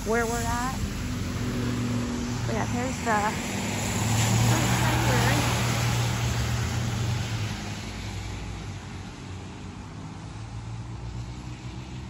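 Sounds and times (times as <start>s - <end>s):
vehicle engine humming: 0.0s - 7.1s
broad rush of noise: 0.0s - 8.1s.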